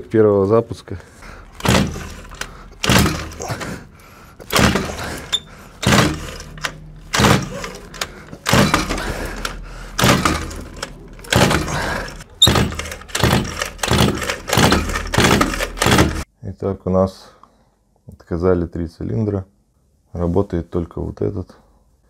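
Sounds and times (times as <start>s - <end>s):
engine kickstarter cranking: 1.2s - 16.3s.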